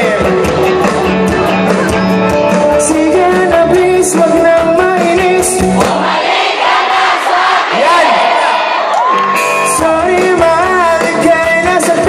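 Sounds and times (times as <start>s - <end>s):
crowd voices: 0.0s - 3.0s, 5.7s - 9.8s
live rock band playing: 0.0s - 6.1s, 9.0s - 12.0s
lead singer singing: 2.7s - 8.8s, 9.6s - 12.0s.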